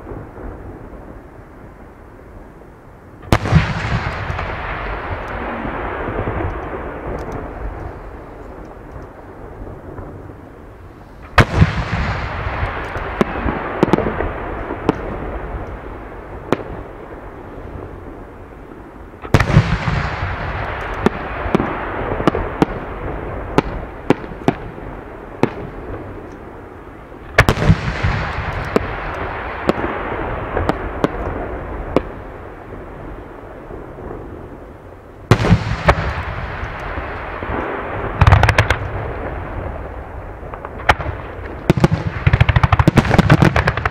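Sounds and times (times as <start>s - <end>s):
firework shells booming: 3.2s - 8.9s, 11.2s - 17.2s, 19.2s - 26.3s, 27.2s - 32.8s, 35.3s - 43.9s
sharp firework pops: 3.2s - 9.2s, 11.2s - 15.8s, 19.2s - 22.8s, 25.4s - 26.4s, 27.3s - 32.2s, 35.3s - 39.4s, 40.5s - 43.9s.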